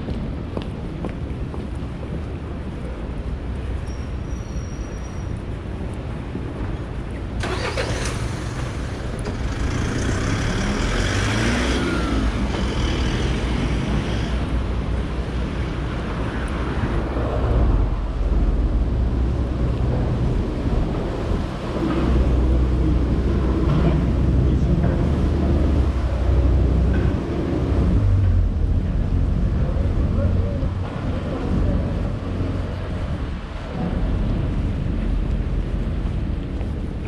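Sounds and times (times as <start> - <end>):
low traffic rumble: 0.0 - 37.0
cars and trucks driving past: 3.9 - 37.0
vehicle passing close: 7.4 - 14.8.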